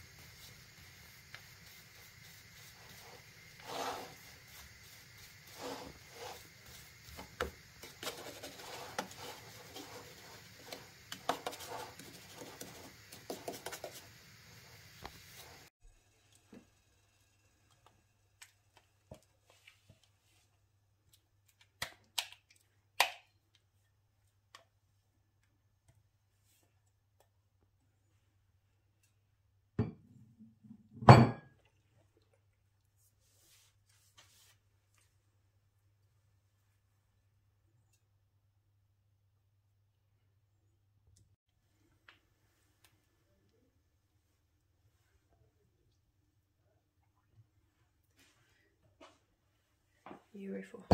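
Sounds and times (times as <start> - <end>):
kitchenware knocking: 31.0 - 31.5.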